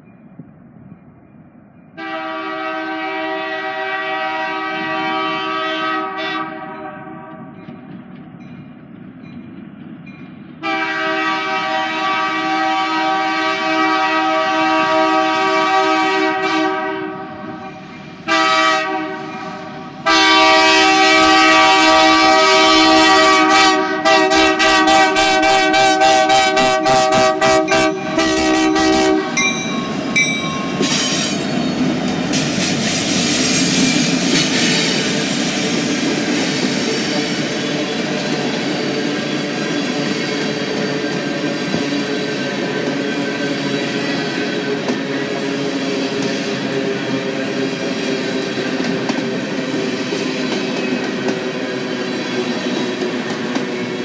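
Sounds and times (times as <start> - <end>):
locomotive air horn blasts: 2.0 - 7.5, 10.6 - 29.6
train wheels rumbling and clacking: 4.7 - 54.0.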